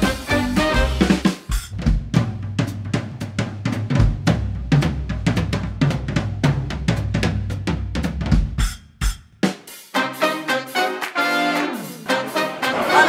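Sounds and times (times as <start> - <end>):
drum kit beat: 0.0 - 13.0.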